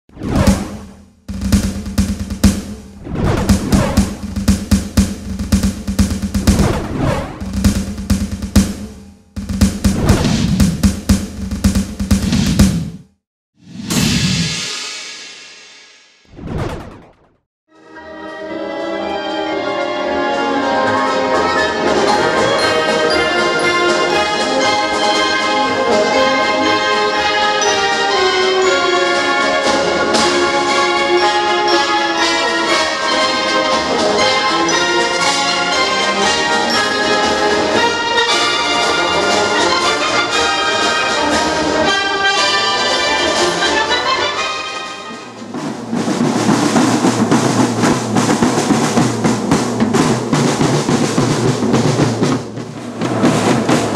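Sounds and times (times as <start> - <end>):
snare drum corps drumming: 0.4 - 13.1, 45.1 - 53.9
brass band playing: 3.5 - 10.3, 18.2 - 53.9.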